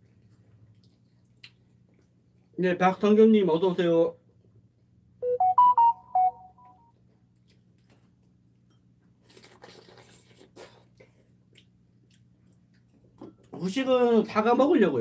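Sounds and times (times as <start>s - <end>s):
biting and chewing crackles: 9.2s - 13.1s.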